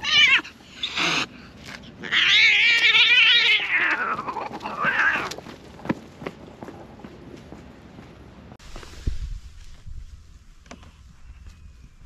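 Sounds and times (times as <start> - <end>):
cats yowling: 0.0 - 1.3, 2.0 - 5.4.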